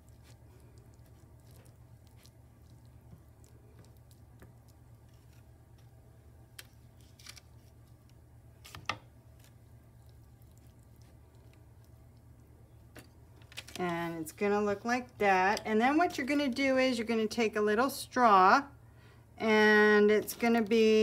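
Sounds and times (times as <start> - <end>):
crunching and squishing birdseed mixture: 0.0 - 8.1, 9.2 - 13.8
steady low hum: 0.0 - 21.0.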